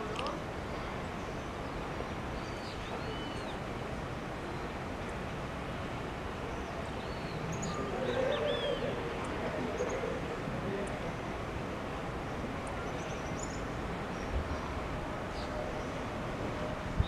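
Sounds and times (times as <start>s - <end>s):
outdoor background noise: 0.0s - 17.0s
birds chirping: 6.5s - 10.2s
lower louder bird call: 7.0s - 10.2s.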